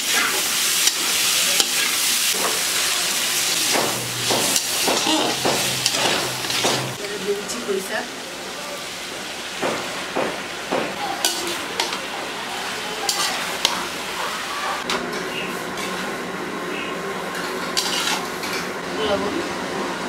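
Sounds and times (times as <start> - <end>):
vegetables sizzling in oil: 0.0 - 20.0
metal spatula scraping a pan: 3.4 - 7.0, 11.2 - 12.0, 13.1 - 13.9, 15.8 - 16.1, 17.4 - 18.7.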